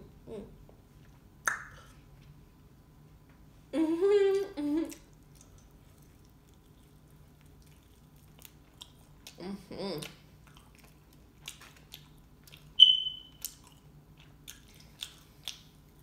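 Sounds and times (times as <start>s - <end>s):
woman humming: 0.0s - 0.6s, 3.7s - 5.0s, 9.4s - 10.2s
mouth clicks and lip smacks: 1.4s - 2.0s, 14.5s - 16.0s.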